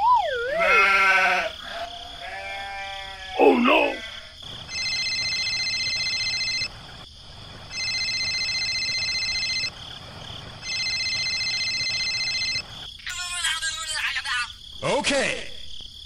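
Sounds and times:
mobile phone ringing: 4.7s - 6.7s, 7.7s - 9.7s, 10.6s - 12.7s.

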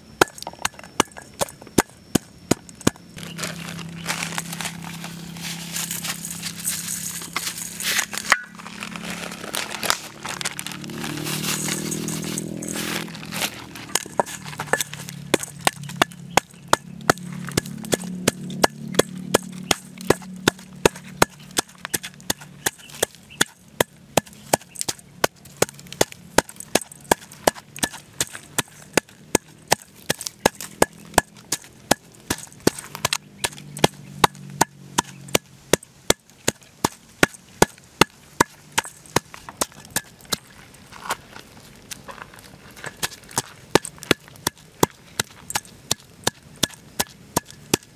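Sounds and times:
wooden pestle pounding in steel bowl: 0.2s - 3.0s, 10.5s - 40.5s, 42.9s - 47.9s.

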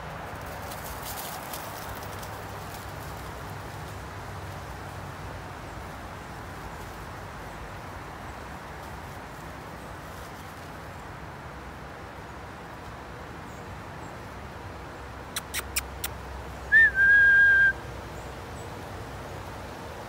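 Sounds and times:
dry leaves rustling: 0.0s - 13.1s.

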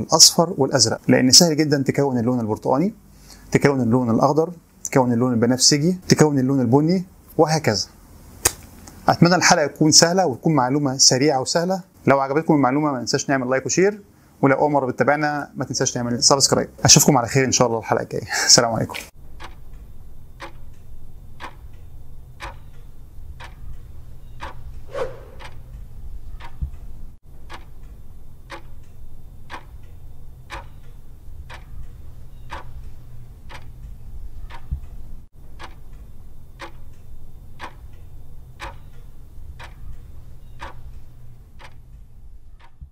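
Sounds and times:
low steady rumble: 19.2s - 42.7s
steady ticking: 19.2s - 42.9s.

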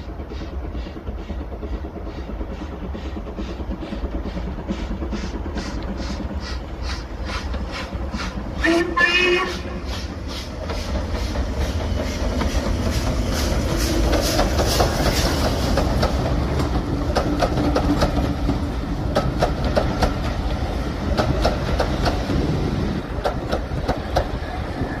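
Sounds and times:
steam locomotive exhaust beats: 0.0s - 25.0s
train heavy rumble: 0.0s - 25.0s
wheels clicking over rail joints: 10.6s - 25.0s.

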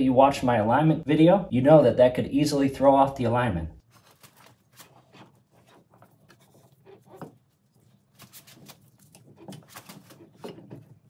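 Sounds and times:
faint rubbing: 3.9s - 10.6s.

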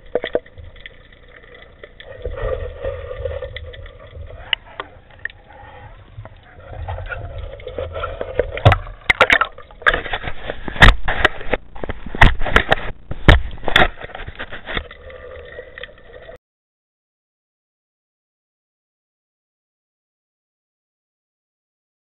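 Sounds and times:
muffled underwater rumble: 0.0s - 16.4s
steady hum: 0.0s - 16.4s.

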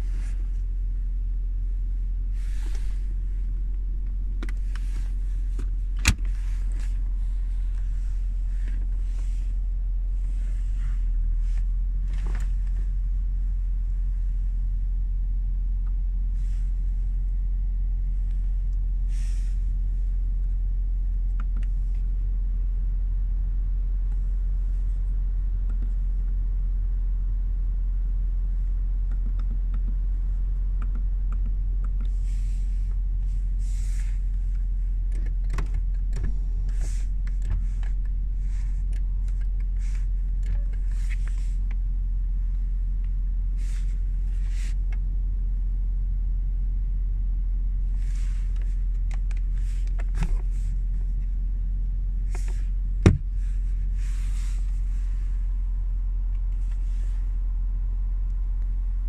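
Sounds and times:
low cabin rumble: 0.0s - 59.0s.

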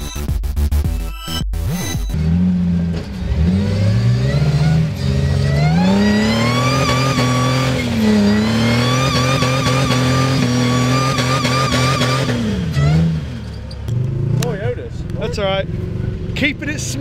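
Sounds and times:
engine revving under load: 1.6s - 17.0s.

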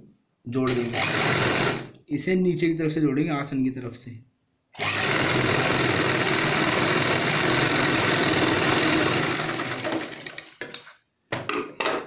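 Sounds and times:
sewing machine running: 0.7s - 1.9s, 4.8s - 10.6s.

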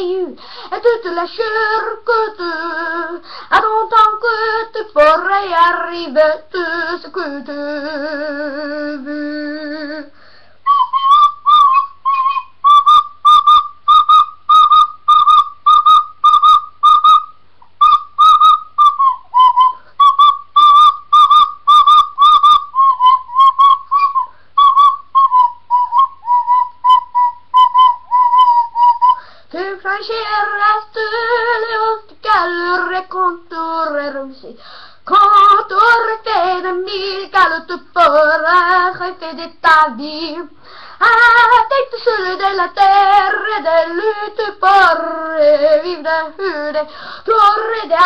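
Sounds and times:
boy singing: 0.0s - 10.1s, 26.8s - 48.0s
tin whistle melody: 10.6s - 29.3s.

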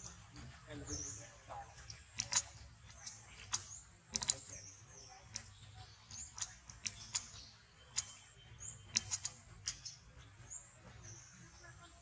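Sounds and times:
faint sharp clicks: 1.8s - 4.6s, 5.3s - 8.2s, 8.9s - 9.9s.

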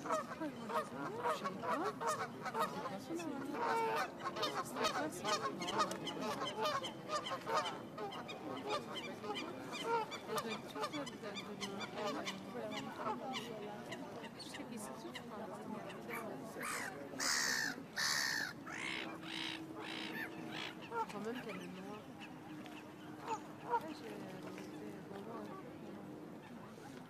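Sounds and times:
geese honking: 16.6s - 24.0s.

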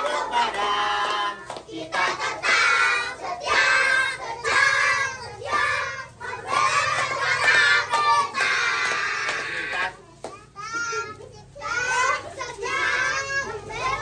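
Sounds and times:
children singing: 0.0s - 10.0s, 10.7s - 14.0s.

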